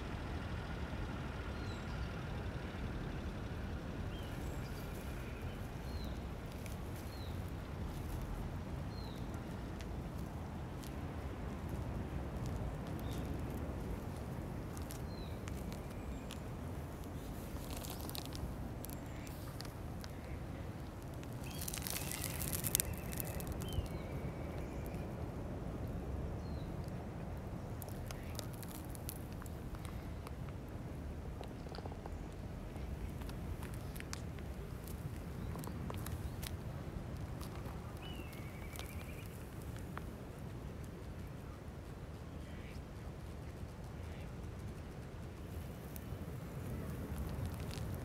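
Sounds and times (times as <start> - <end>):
steady low rumble: 0.0 - 48.0
dry grass crackling and rustling: 3.9 - 42.8, 45.3 - 48.0
falling bird chirps: 21.4 - 25.0.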